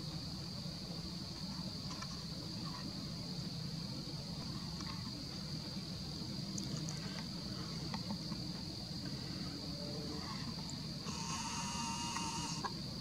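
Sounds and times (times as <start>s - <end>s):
crickets trilling: 0.0s - 13.0s
camera zoom motor whirring: 11.1s - 12.7s.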